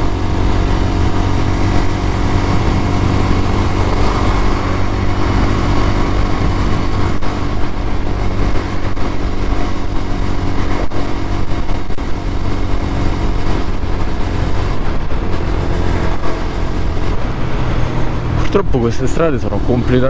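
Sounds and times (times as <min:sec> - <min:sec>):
motorcycle engine cruising: 0:00.0 - 0:20.0.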